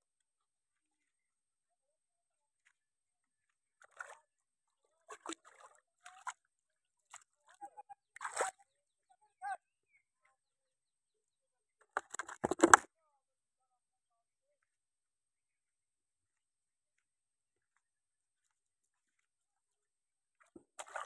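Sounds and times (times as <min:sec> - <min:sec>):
fish splashing in water: 0:20.7 - 0:21.0.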